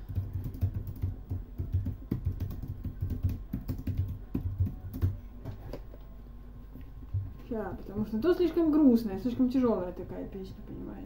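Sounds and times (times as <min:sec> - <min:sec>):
computer keyboard typing: 0:00.0 - 0:05.8.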